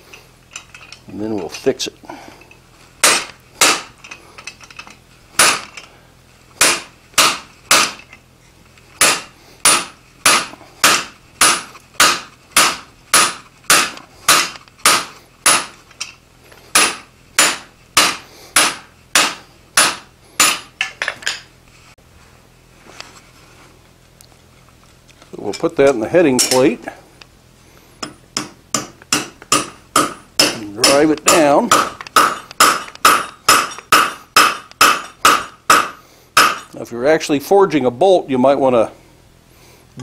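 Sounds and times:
hammer striking metal: 3.0s - 4.0s, 5.4s - 5.8s, 6.6s - 8.0s, 9.0s - 15.8s, 16.8s - 21.1s, 28.0s - 36.7s.

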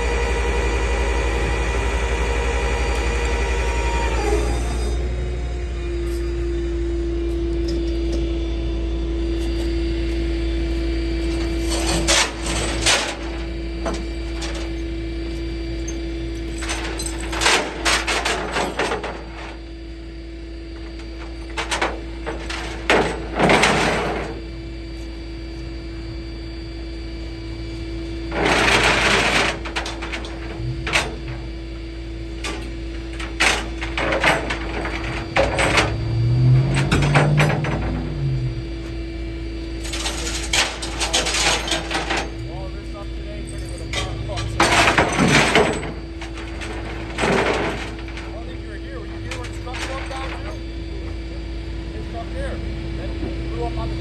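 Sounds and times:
tow truck engine humming: 0.0s - 54.0s
metal clanks and rattles: 11.2s - 19.6s, 20.8s - 24.4s, 28.3s - 31.6s, 32.3s - 38.3s, 39.8s - 50.7s.

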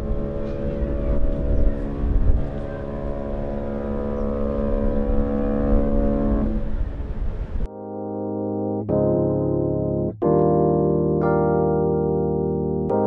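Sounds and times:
low rumble: 0.0s - 7.7s
ship's horn blast: 0.0s - 7.7s.

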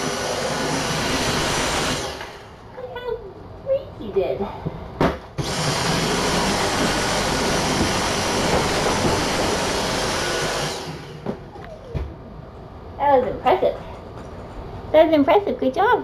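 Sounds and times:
small vacuum cleaner running: 0.0s - 2.6s, 5.4s - 12.1s.

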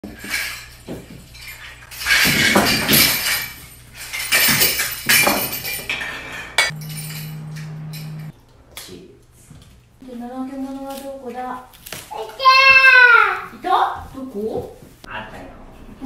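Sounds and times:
steady low hum: 4.8s - 10.4s.

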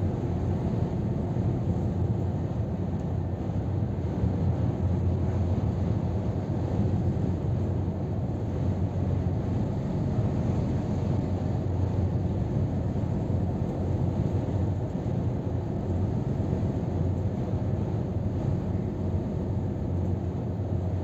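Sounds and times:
truck cab engine and road drone: 0.0s - 21.0s.

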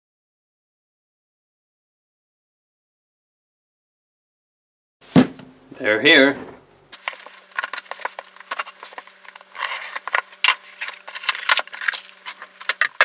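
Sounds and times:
cardboard flaps folding: 6.4s - 13.0s
paper packing rustling: 6.4s - 13.0s
knife slitting packing tape: 7.0s - 13.0s.

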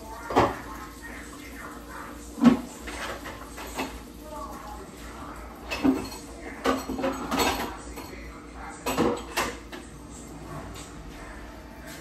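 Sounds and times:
dishes clattering in sink: 0.2s - 0.8s, 2.4s - 4.1s, 5.6s - 9.9s.

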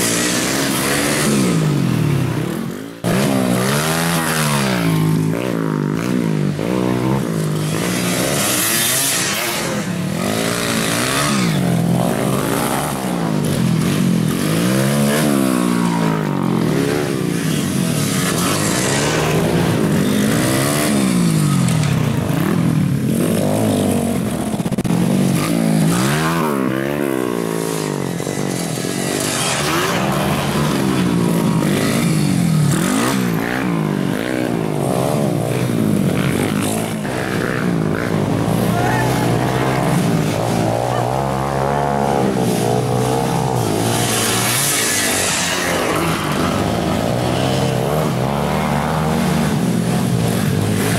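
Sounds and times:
trail motorcycles revving: 0.0s - 50.9s.

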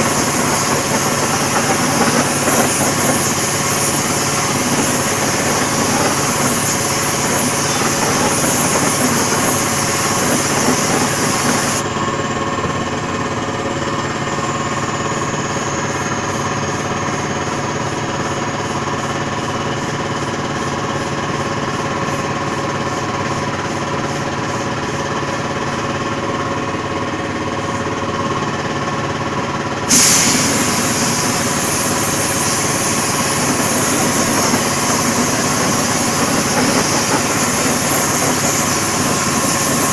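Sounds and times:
spray gun hissing: 0.0s - 11.8s, 29.9s - 39.9s
air compressor running: 0.0s - 39.9s.

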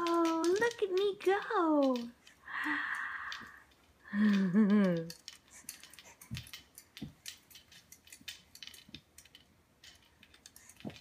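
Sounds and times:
harness and spring clinking: 0.0s - 11.0s.

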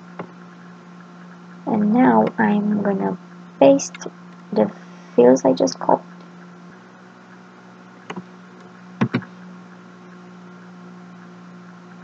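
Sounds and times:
faint microphone hiss: 0.0s - 7.2s
low electrical hum: 0.0s - 12.0s.

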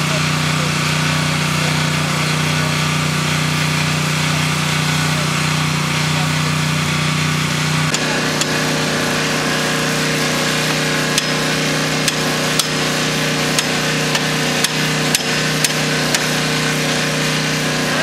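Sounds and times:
truck engine humming: 0.0s - 18.0s
hammer striking wooden pole: 10.6s - 16.5s.

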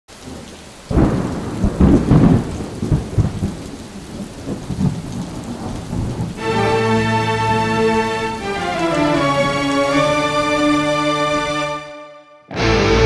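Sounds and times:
faint hiss of rain: 0.1s - 11.9s
thunder rumbling: 0.2s - 10.2s.

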